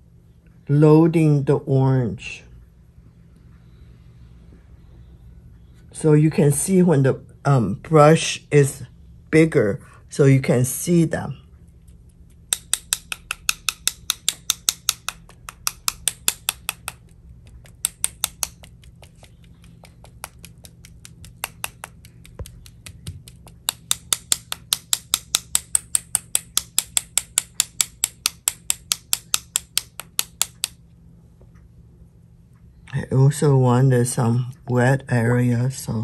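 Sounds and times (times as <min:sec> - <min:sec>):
brush tapping against brush: 0:12.3 - 0:30.8.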